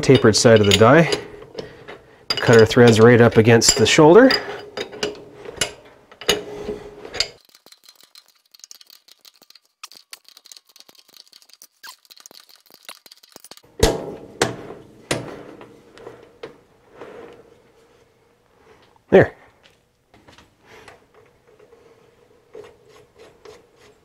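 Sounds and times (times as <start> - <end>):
metal tools clanking on chuck: 0.0 - 6.4.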